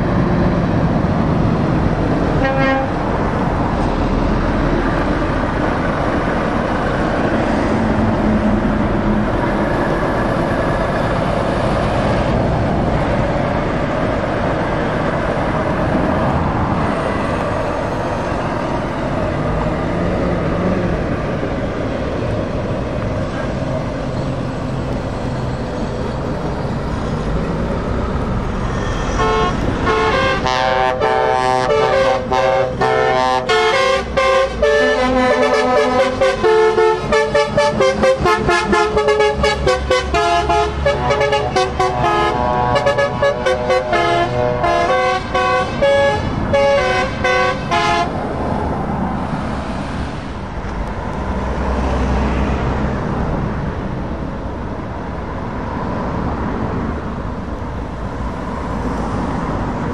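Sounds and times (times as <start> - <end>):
lorries and cars passing: 0.0 - 59.9
short horn toot: 28.7 - 48.1.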